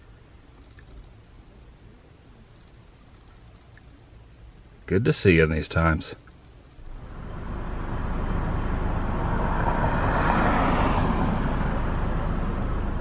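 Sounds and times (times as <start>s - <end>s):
steady low rumble: 6.4s - 13.0s
car passing by: 6.9s - 13.0s.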